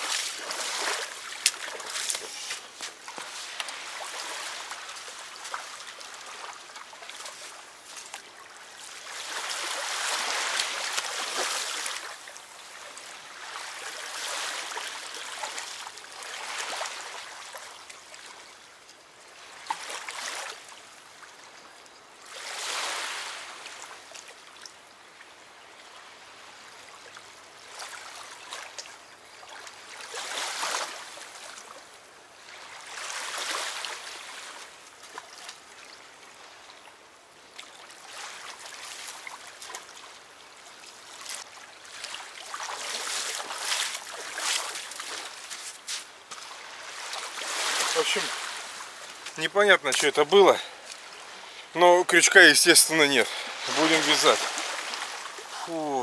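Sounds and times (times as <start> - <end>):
river water lapping at bank: 0.0 - 56.0.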